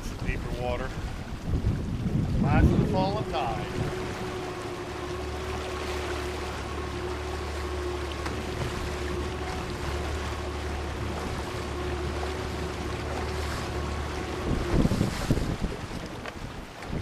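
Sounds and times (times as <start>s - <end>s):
wind noise: 0.0s - 5.0s, 11.0s - 17.0s
outboard motor humming: 0.0s - 17.0s
water: 0.0s - 17.0s.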